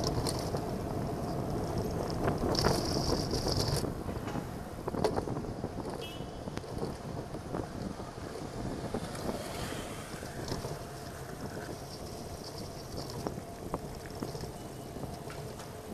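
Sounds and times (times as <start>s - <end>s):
bike clicks and knocks: 0.0s - 15.9s
tyre and road noise: 0.0s - 15.9s
wind rushing over microphone: 0.0s - 15.9s.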